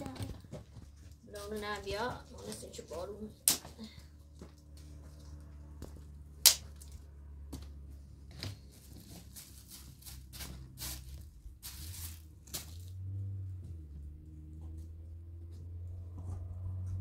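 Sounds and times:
dry twigs snapping: 3.4s - 3.7s, 6.4s - 7.0s, 11.6s - 12.9s
sticks rustling: 8.3s - 13.0s.

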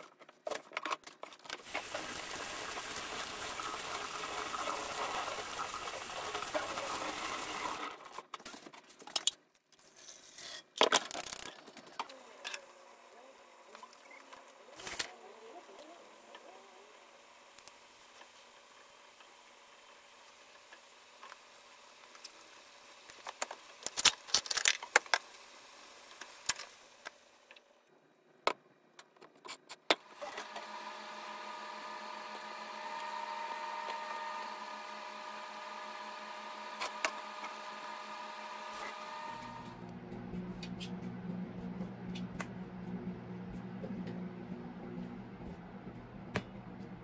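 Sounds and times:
electrical hum with whine: 30.2s - 47.0s.

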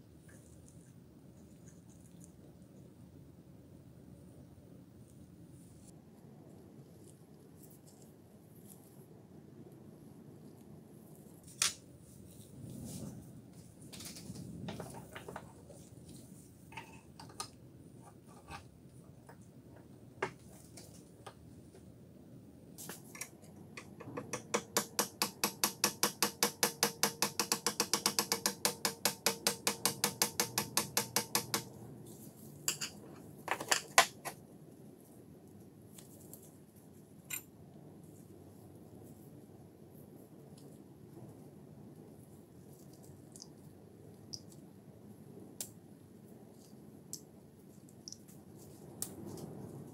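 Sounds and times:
metal knocks: 23.8s - 31.7s.

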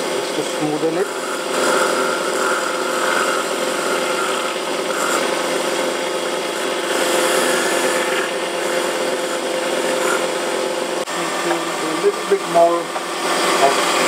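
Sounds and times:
lathe humming: 0.0s - 14.0s
blade scraping spinning tip: 0.9s - 10.5s.

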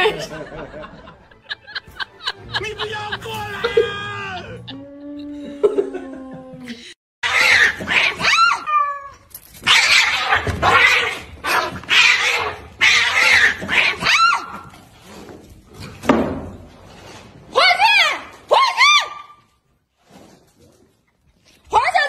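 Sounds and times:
cats fighting and yowling: 7.2s - 15.2s.

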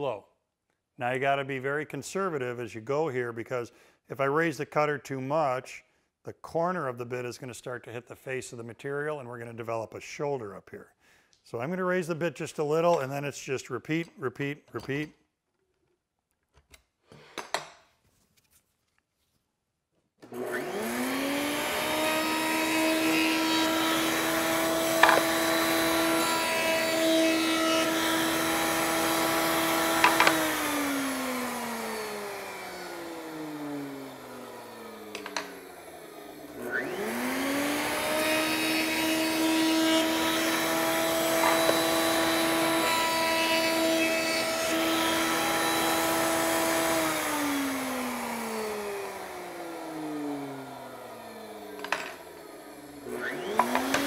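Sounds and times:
router whining: 20.2s - 54.0s.

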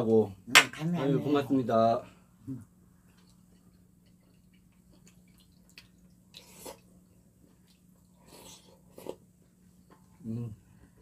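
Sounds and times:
faint steady hum: 0.0s - 11.0s
wet mouth eating sounds: 3.1s - 9.3s.

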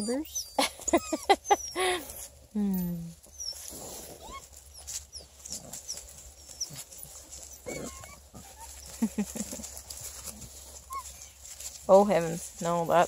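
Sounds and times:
puppies grunting softly: 3.0s - 11.4s
puppies moving in dry leaves: 3.1s - 13.0s.

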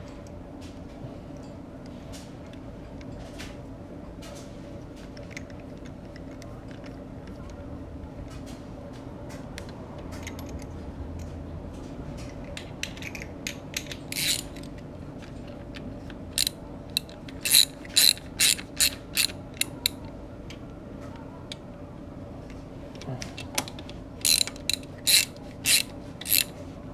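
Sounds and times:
socket ratchet clicking: 12.8s - 14.7s, 16.4s - 20.0s, 24.2s - 26.5s.

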